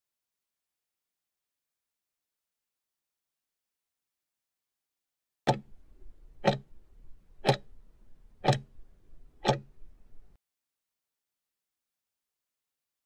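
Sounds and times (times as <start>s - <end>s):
countdown timer ticking: 6.4s - 6.7s, 7.4s - 7.7s, 8.4s - 8.7s, 9.4s - 9.7s.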